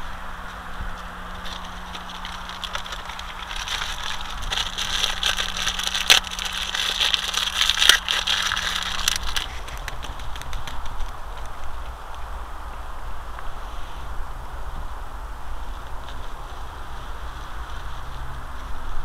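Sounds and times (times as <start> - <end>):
plastic and fabric rustling: 1.2 - 11.9.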